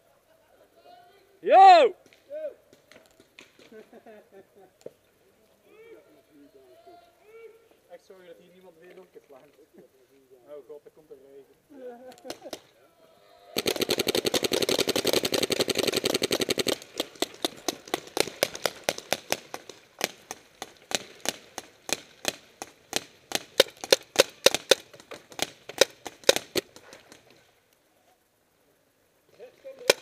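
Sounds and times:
paintball markers firing: 13.6s - 27.4s, 29.7s - 30.0s.

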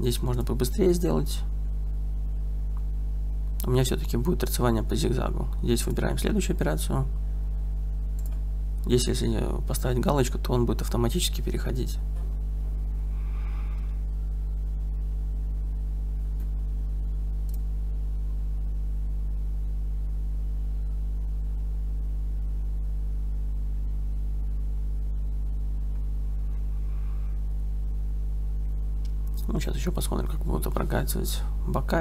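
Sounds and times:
low electrical hum: 0.0s - 32.0s
faint clicks: 8.1s - 8.9s, 17.4s - 17.7s.

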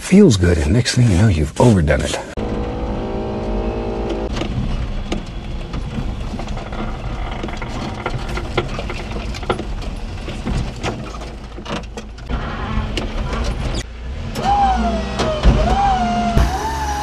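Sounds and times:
truck engine rumbling: 2.2s - 17.0s
knocks and rattles: 4.3s - 12.3s.

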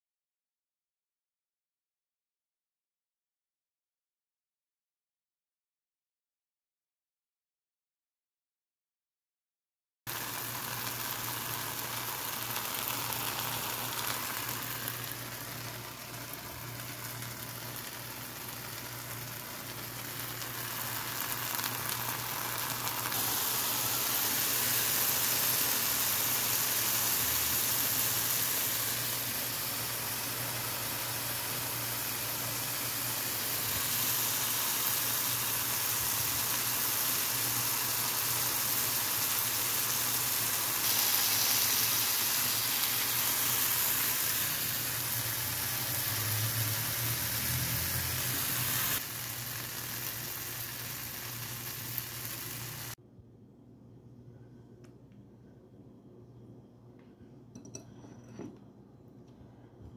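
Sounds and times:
vegetables sizzling in oil: 10.1s - 53.0s.

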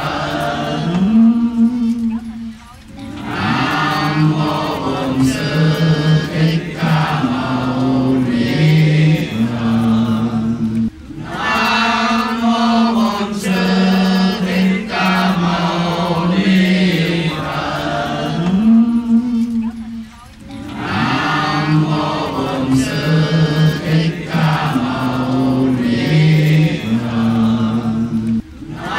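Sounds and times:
group chanting in unison: 0.0s - 28.9s.

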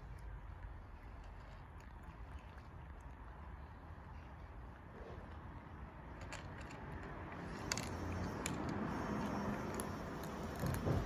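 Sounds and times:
cats crunching kibble: 0.0s - 11.0s.

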